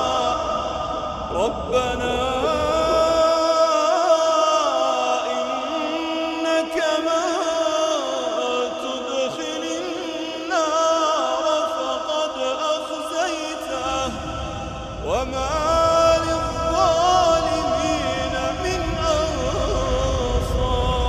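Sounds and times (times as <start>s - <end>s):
low rumble: 0.0s - 3.3s, 13.9s - 21.0s
person chanting: 0.0s - 21.0s.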